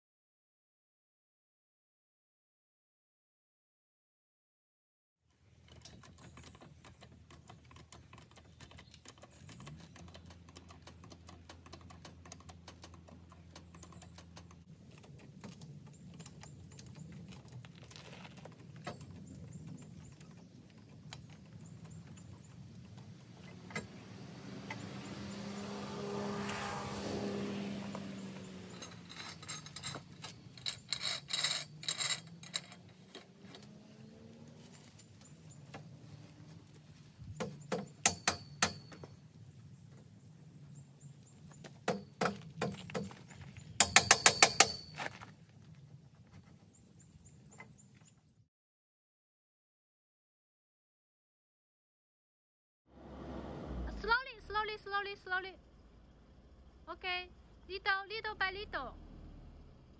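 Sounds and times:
metal clinking and tapping: 28.0 - 33.6, 37.4 - 39.1, 43.8 - 45.2.

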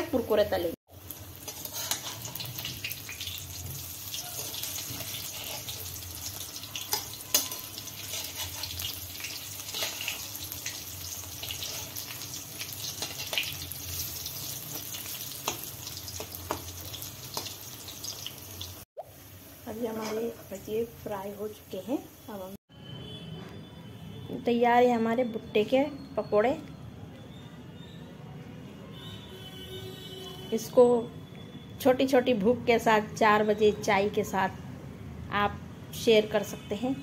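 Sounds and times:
food sizzling in hot oil: 0.9 - 22.6.

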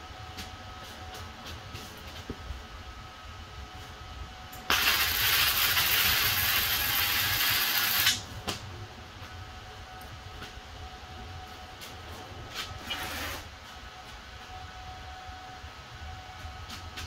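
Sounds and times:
welding arc crackling hiss: 4.6 - 8.2.

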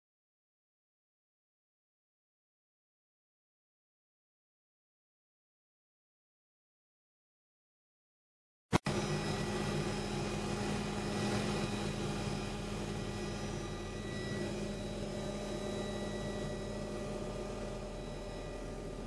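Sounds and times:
helicopter engine and rotor noise: 8.8 - 19.0
steady high tones: 8.8 - 19.0.

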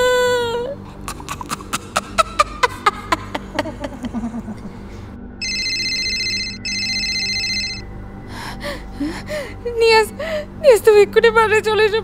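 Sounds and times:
electronic telephone ring: 5.4 - 7.8.

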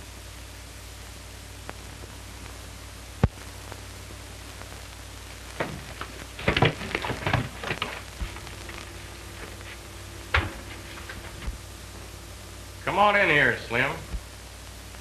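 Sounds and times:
soundtrack hiss and hum: 0.0 - 15.0
irregular knocks and thumps: 5.5 - 8.8, 10.3 - 11.6.

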